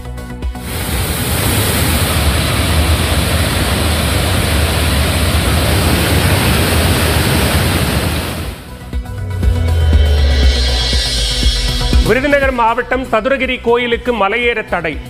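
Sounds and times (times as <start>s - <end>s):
waterfall rushing: 0.6s - 8.7s.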